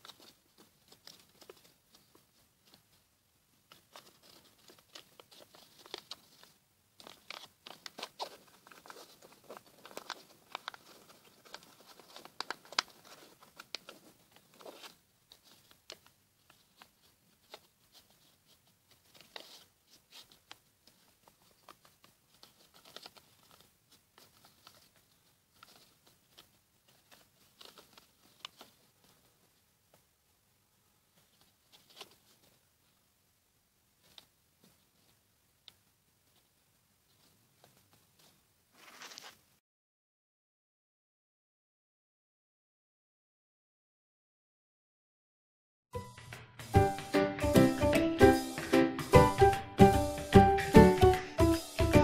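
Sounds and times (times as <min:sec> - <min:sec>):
paper crinkling: 0:00.0 - 0:29.6, 0:31.1 - 0:33.0, 0:34.0 - 0:36.5, 0:37.1 - 0:39.5.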